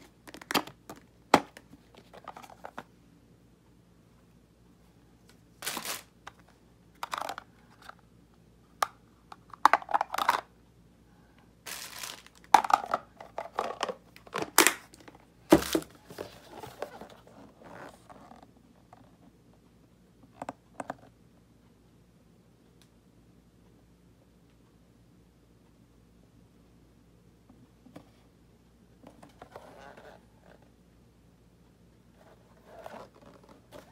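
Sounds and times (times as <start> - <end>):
plastic box clicks and knocks: 0.2 - 2.8, 12.4 - 16.0
plastic wrap crinkling: 5.6 - 6.1, 11.7 - 12.9.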